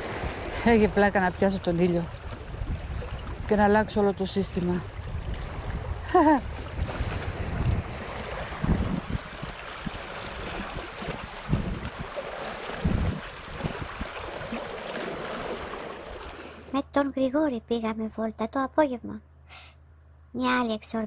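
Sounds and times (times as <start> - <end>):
small waves lapping against rocks: 0.0 - 16.7
wind rumbling on microphone: 0.0 - 16.7.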